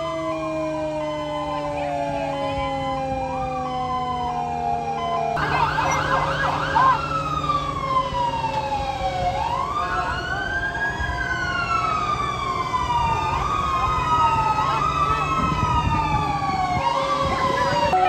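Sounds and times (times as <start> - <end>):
fire engine sirens: 0.0 - 18.0
low engine hum: 4.1 - 18.0.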